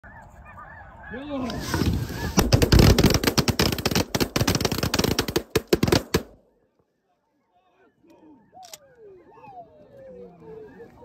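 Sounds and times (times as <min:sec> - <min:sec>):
snow geese calling: 0:00.0 - 0:02.7
shotgun shots: 0:02.3 - 0:06.4.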